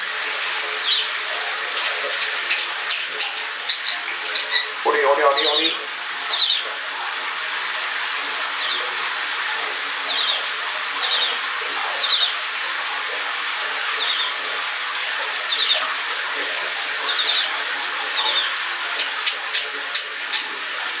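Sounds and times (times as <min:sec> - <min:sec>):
shower water running: 0:00.0 - 0:21.0
budgerigar chirping: 0:01.8 - 0:04.7, 0:17.1 - 0:17.5.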